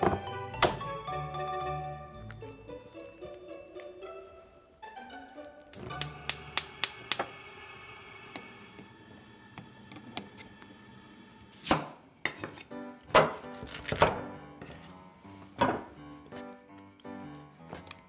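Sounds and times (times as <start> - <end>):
soft background music: 0.0 - 6.7, 11.2 - 18.0.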